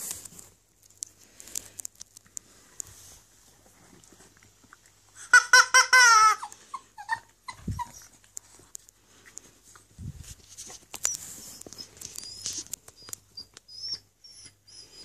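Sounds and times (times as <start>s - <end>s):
small dog whining: 5.2s - 8.3s, 11.0s - 15.0s.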